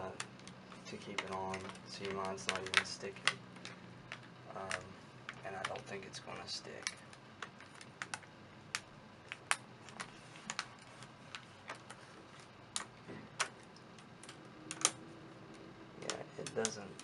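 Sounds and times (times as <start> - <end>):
fingers clicking and tapping: 0.1 - 5.9, 12.7 - 15.0, 16.0 - 17.0.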